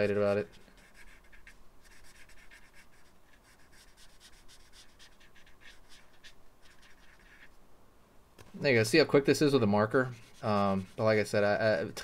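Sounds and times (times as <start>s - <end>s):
marker rubbing on paper: 0.0s - 7.6s, 9.9s - 11.5s.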